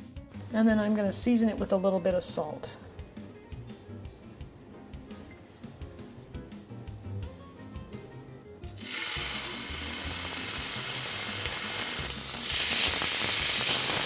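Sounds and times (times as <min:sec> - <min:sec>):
chicken sizzling in a skillet: 0:08.8 - 0:14.0.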